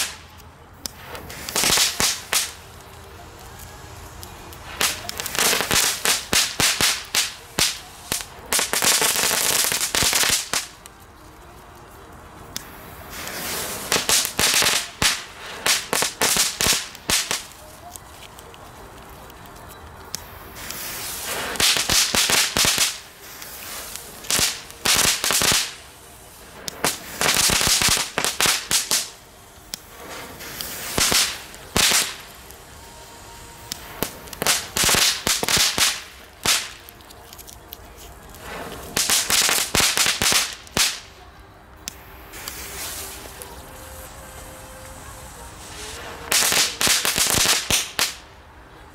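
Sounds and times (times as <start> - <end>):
fireworks crackling pops: 0.0 - 48.9.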